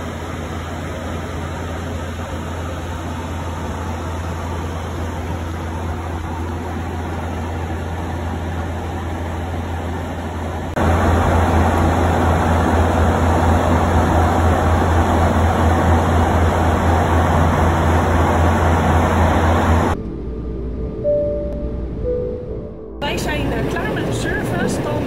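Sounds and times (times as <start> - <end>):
jet airliner cabin drone: 0.0 - 25.0
low hum: 0.0 - 25.0.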